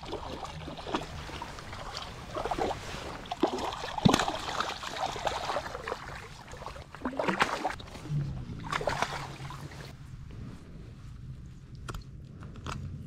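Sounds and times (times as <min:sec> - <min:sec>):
fish thrashing and splashing: 0:00.0 - 0:08.0, 0:08.6 - 0:09.9
choppy water hiss: 0:00.0 - 0:10.1.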